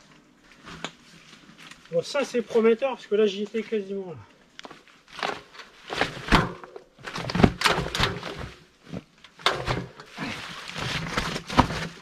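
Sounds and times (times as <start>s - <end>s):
bike thunking on rock: 5.2s - 8.6s.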